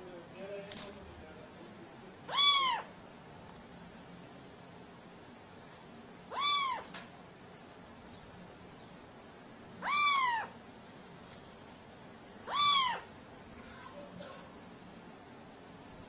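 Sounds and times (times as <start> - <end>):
cat meowing: 2.3 - 2.9, 6.3 - 7.0, 9.8 - 10.6, 12.4 - 13.1.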